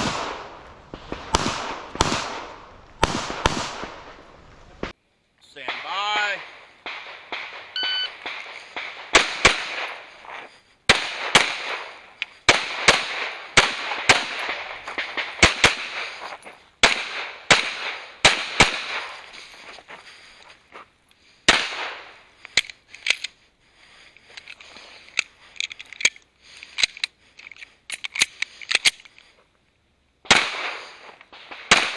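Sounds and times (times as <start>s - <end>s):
pistol shots with echo: 0.0s - 4.2s, 5.6s - 10.2s, 10.9s - 19.2s, 21.5s - 22.2s, 30.3s - 31.9s.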